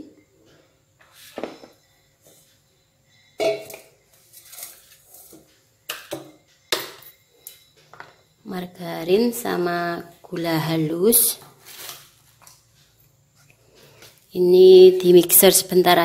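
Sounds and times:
metal bowl set on table: 3.4s - 8.2s.

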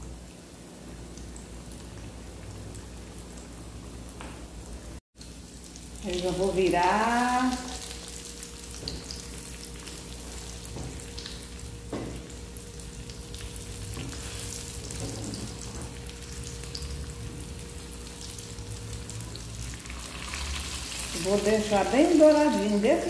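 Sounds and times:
chicken sizzling in oil: 5.2s - 23.0s.

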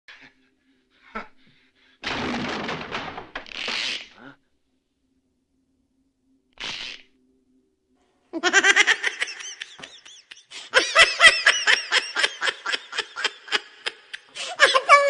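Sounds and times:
loud laughter: 8.4s - 15.0s.

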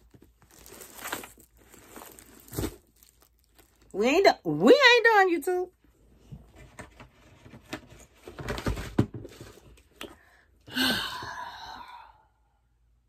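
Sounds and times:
handling knocks and rustling: 0.0s - 3.8s
rustling and scuffling: 0.0s - 3.8s.

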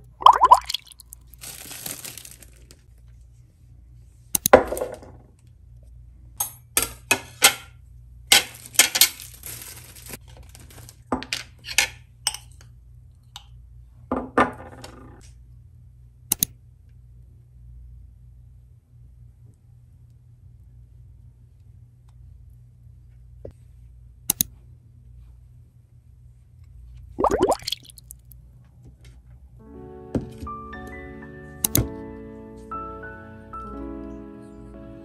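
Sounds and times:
plastic bag rustling: 1.1s - 2.9s, 8.5s - 11.0s.

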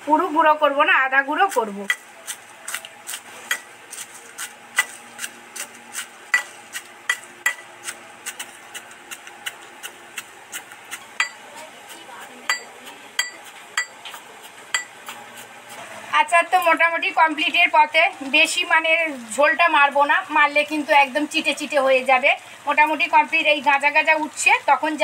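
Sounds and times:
brass pestle pounding in mortar: 4.4s - 15.8s.

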